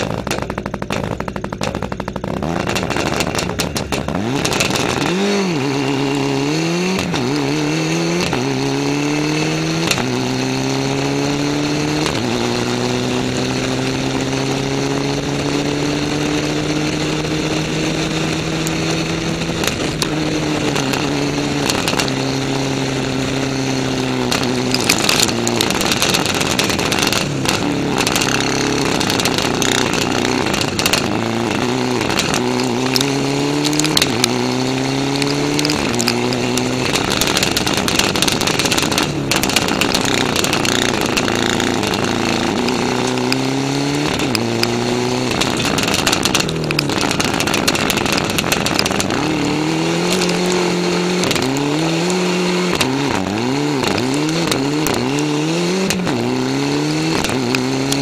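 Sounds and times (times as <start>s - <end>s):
car engine accelerating: 0.0s - 58.0s.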